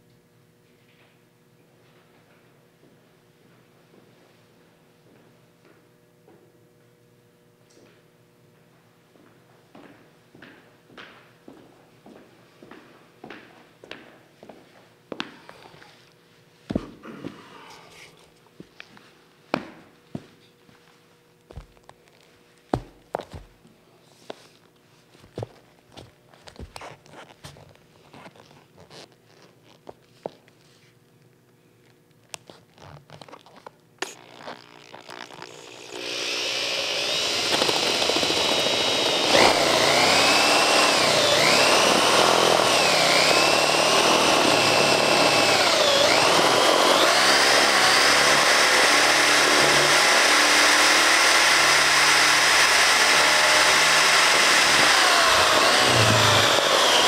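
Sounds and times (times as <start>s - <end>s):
power drill boring into books: 34.0s - 57.0s.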